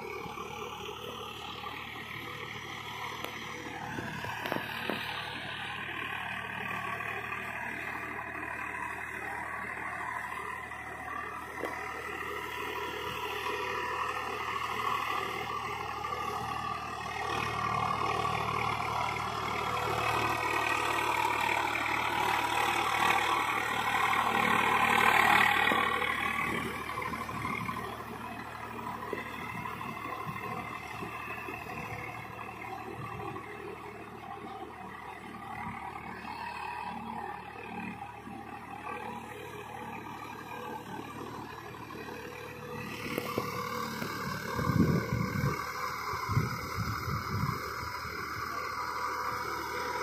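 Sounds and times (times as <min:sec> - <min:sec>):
tractor diesel engine running: 0:00.0 - 0:50.0.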